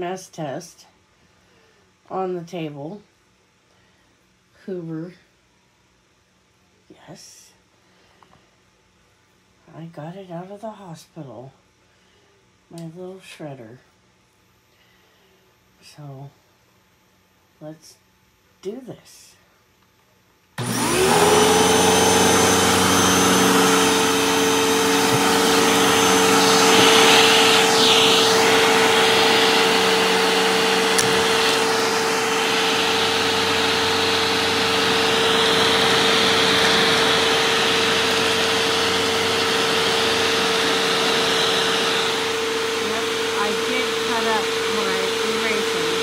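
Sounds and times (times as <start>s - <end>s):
vacuum cleaner motor whining: 20.6s - 46.0s.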